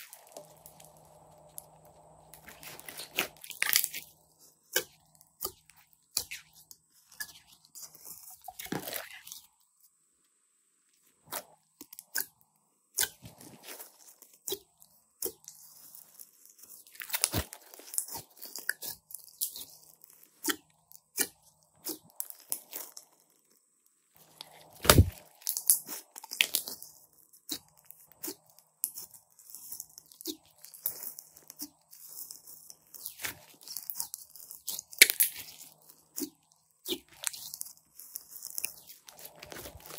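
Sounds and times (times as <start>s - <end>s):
hands squishing beaded slime: 0.0s - 9.5s, 24.4s - 39.9s.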